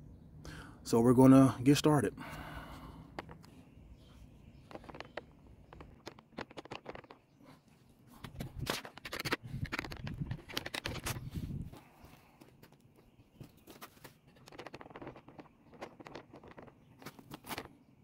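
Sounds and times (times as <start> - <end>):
phone handling scratching: 8.2 - 11.3.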